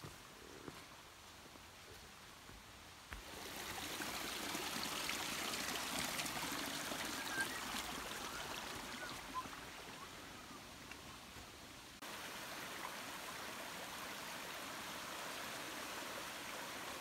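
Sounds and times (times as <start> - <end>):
creek babbling over rocks: 1.0 - 17.0.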